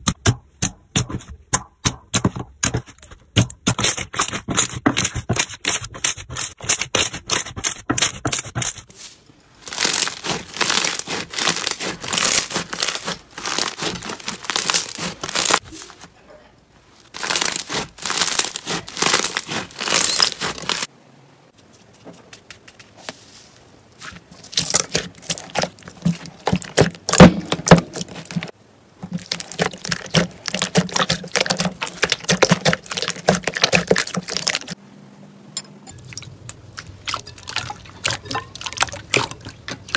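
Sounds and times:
hands kneading sticky slime: 0:09.6 - 0:16.1, 0:17.1 - 0:20.9, 0:24.0 - 0:34.8.

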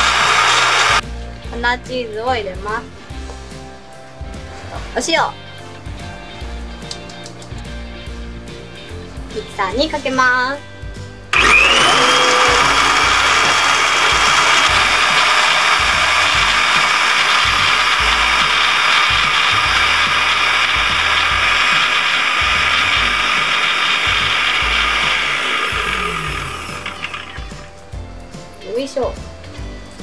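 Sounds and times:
blender motor running: 0:00.0 - 0:01.0, 0:11.3 - 0:27.8.

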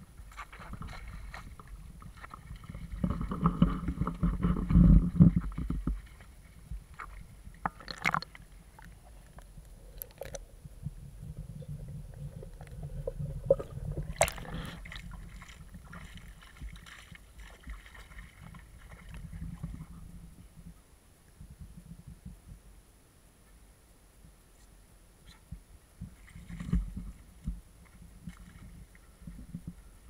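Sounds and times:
muffled water sloshing and gurgling: 0:00.0 - 0:22.5, 0:25.5 - 0:30.0.

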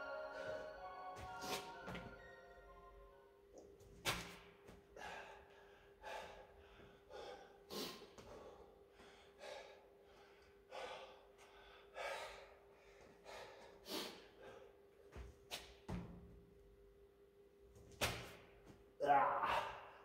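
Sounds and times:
man breathing hard: 0:04.9 - 0:14.9.

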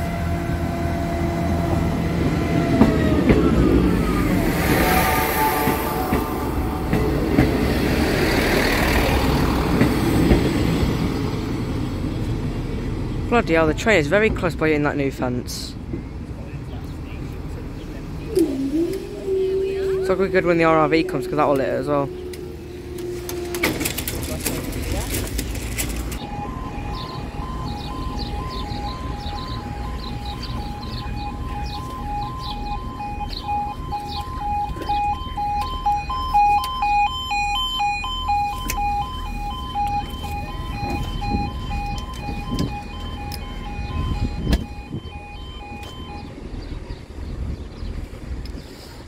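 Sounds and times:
level crossing alarm two-tone: 0:26.2 - 0:46.4.

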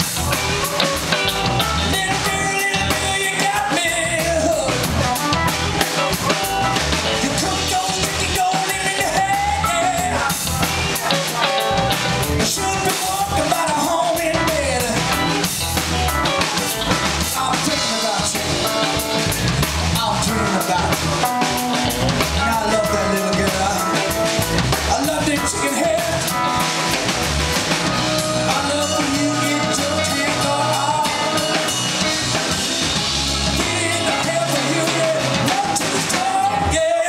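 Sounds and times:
live funk band playing: 0:00.0 - 0:37.0.

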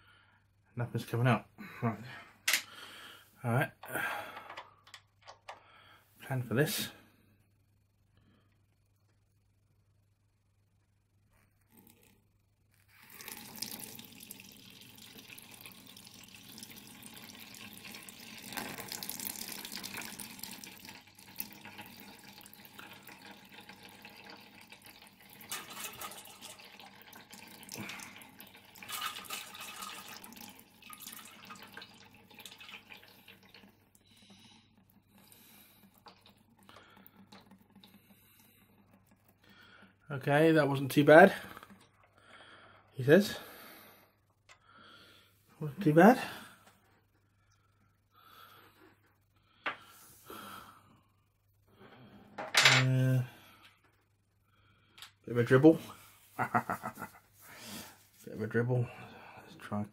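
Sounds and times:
liquid splashing into a container: 0:13.0 - 0:34.5.

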